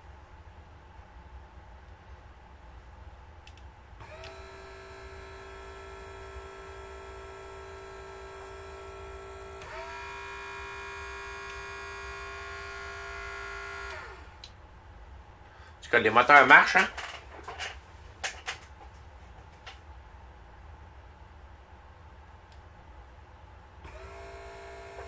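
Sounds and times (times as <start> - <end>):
small electric motor humming: 4.0 - 14.4, 23.9 - 25.0.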